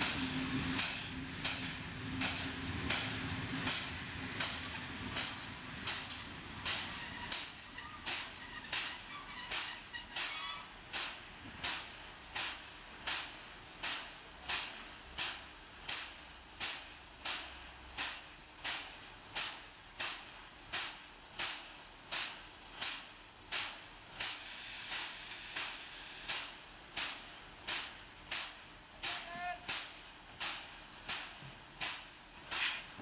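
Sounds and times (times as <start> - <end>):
steam locomotive puffing: 0.0 - 15.5, 22.8 - 33.0
steady steam hiss: 0.0 - 33.0.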